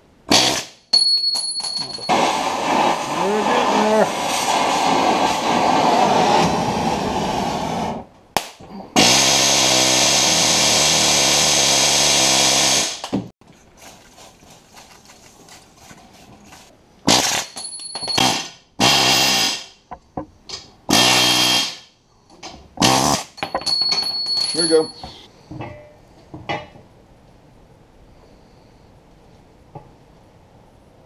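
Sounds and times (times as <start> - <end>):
pneumatic air hammer: 0.3 - 0.8, 2.0 - 8.0, 9.0 - 13.2, 17.1 - 19.8, 20.9 - 21.9, 22.8 - 23.4
gas torch flame hissing: 2.1 - 8.0.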